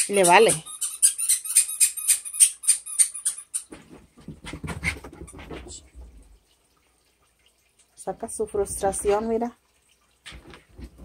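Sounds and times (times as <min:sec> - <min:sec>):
dog scuffling and thumping: 0:03.7 - 0:06.2, 0:10.3 - 0:11.0.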